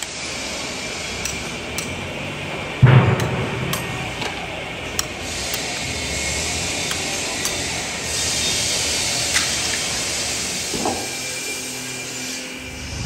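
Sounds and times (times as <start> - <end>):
steady hiss: 5.2 - 13.0.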